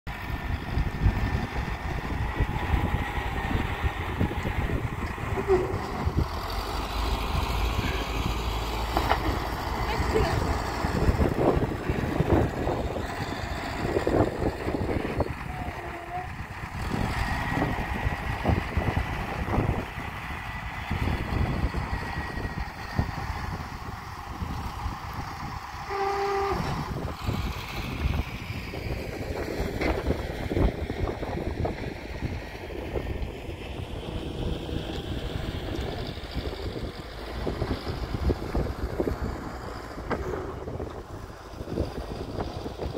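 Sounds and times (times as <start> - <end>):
diesel engine rumbling: 0.1 - 42.9.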